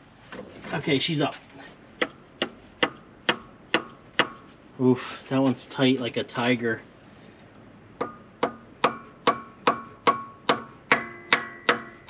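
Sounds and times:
hammer striking metal valve: 0:08.0 - 0:12.0.

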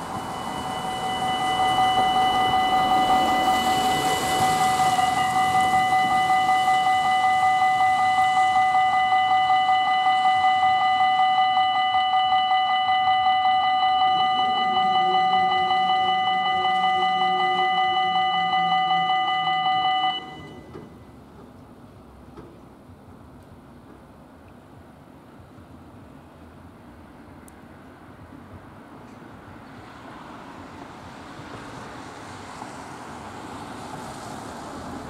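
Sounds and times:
level crossing warning bell: 0:00.0 - 0:21.1.

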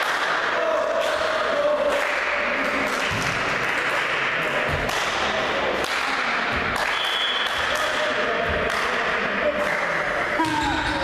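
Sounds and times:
hubbub in a sports hall: 0:00.0 - 0:11.0
short high whistle: 0:06.9 - 0:07.5.

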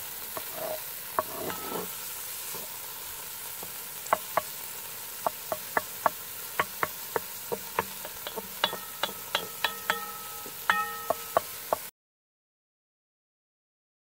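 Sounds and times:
peppers sizzling in hot fat: 0:00.0 - 0:11.9
wooden spoon knocking against pot: 0:03.6 - 0:04.6, 0:05.2 - 0:11.9.

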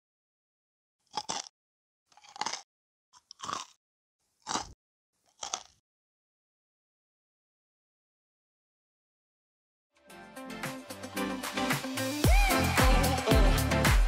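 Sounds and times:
crunchy cookie bites: 0:01.0 - 0:01.5, 0:02.1 - 0:05.8.

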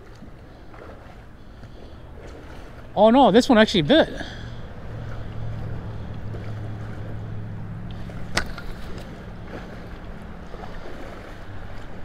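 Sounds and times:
flowing water: 0:00.0 - 0:12.0
fish splashing at surface: 0:04.2 - 0:12.0.

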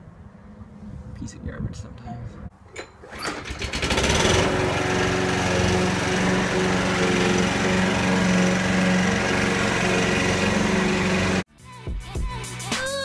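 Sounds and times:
lawn mower engine running: 0:02.6 - 0:11.5.

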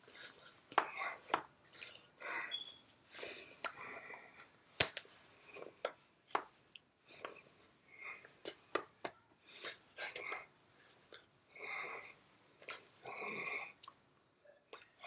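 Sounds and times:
breathy mouth noises and lip smacks: 0:00.0 - 0:02.7, 0:03.5 - 0:07.5, 0:08.1 - 0:11.3, 0:12.0 - 0:14.0, 0:14.7 - 0:15.0
hands tapping and slapping: 0:00.7 - 0:01.6, 0:05.8 - 0:06.6, 0:08.5 - 0:09.2.

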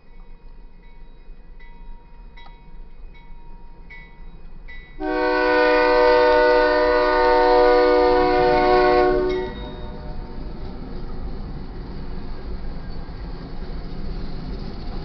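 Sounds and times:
locomotive air horn blast: 0:05.0 - 0:10.2
crossing bell dinging: 0:09.2 - 0:10.3.

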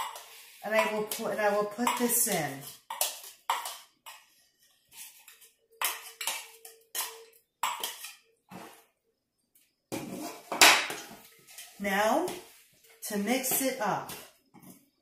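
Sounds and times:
metal spoon clinking on bowls: 0:05.8 - 0:08.3.

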